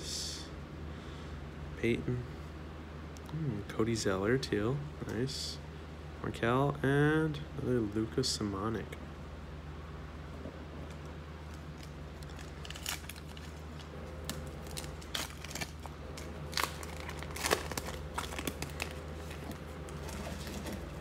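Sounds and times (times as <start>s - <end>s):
foil wrapper crinkling: 11.5s - 21.0s.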